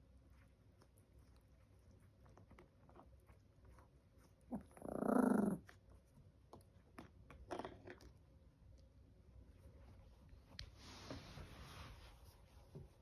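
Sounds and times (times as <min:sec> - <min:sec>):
puppy growling: 0:04.5 - 0:05.8.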